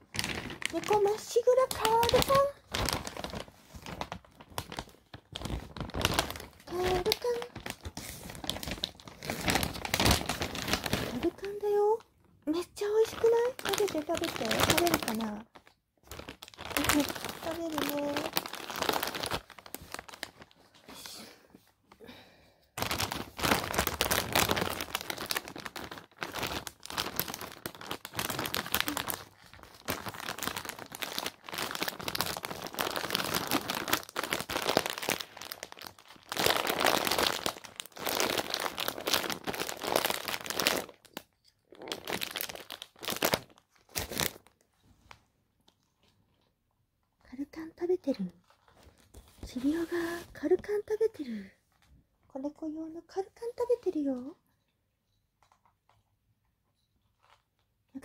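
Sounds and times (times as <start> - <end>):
kitten crunching dry kibble: 0.0 - 11.4, 22.8 - 44.5.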